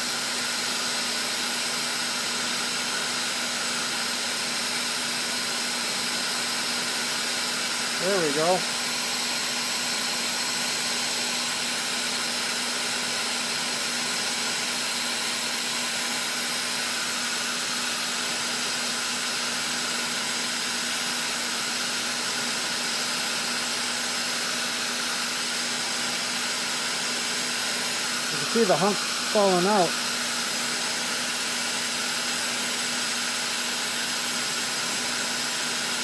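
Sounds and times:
gas torch hissing: 8.0 - 8.8, 27.4 - 32.1.

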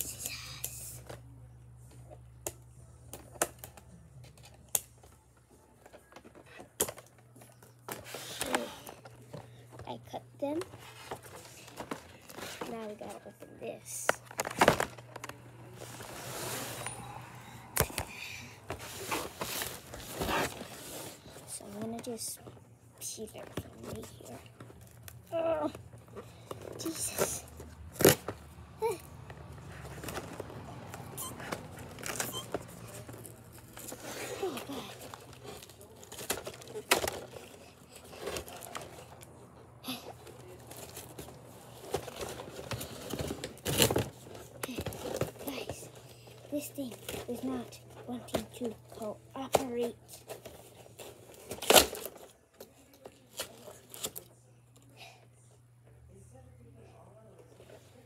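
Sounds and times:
cardboard rustling and scraping: 10.4 - 13.4, 14.2 - 17.1, 18.6 - 22.5, 29.4 - 39.3, 40.3 - 46.0.

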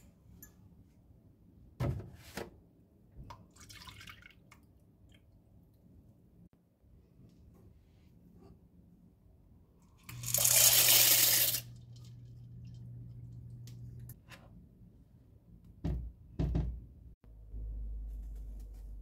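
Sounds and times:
dry pasta pouring into pan: 10.2 - 11.8
low steady hum: 11.6 - 15.8, 17.2 - 19.0.

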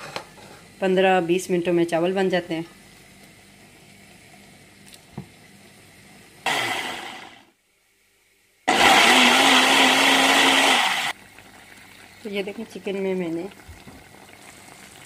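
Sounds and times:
electric blender running: 6.4 - 7.5, 8.7 - 11.2.

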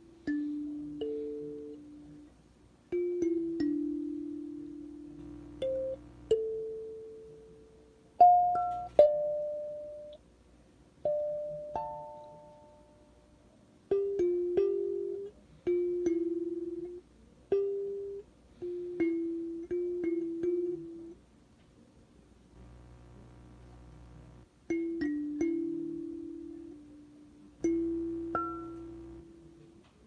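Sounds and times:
kalimba melody: 0.0 - 2.2, 2.9 - 7.6, 8.2 - 10.2, 14.0 - 17.0, 17.6 - 21.1, 24.7 - 26.8, 27.6 - 29.3.

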